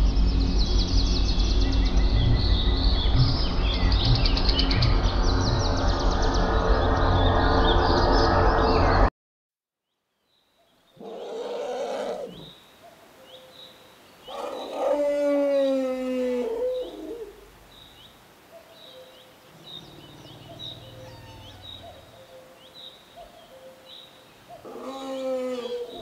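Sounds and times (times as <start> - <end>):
elephant trumpeting: 11.0 - 12.5, 14.3 - 17.5, 19.5 - 22.2, 24.6 - 26.0.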